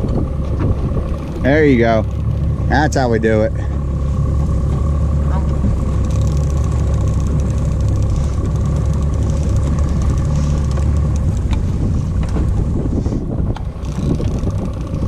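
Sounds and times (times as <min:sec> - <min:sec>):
boat engine rumbling: 0:00.0 - 0:15.0
steady engine whine: 0:00.0 - 0:15.0
sharp clicks: 0:06.0 - 0:11.6.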